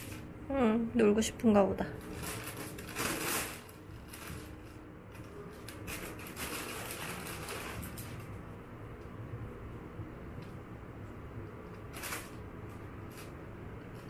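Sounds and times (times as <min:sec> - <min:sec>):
plastic bag crinkling: 0:01.8 - 0:08.5, 0:11.7 - 0:14.0.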